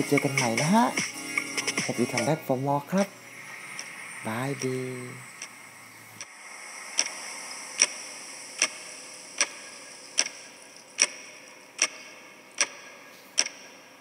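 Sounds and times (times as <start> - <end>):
clock-like ticking: 0.0 - 2.3, 7.8 - 13.6
faint steady hiss: 0.0 - 14.0.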